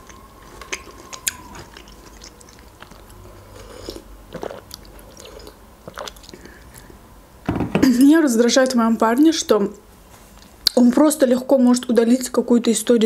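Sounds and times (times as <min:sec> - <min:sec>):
wet mouth clicks: 0:00.0 - 0:03.2
chewing and swallowing: 0:00.0 - 0:07.0.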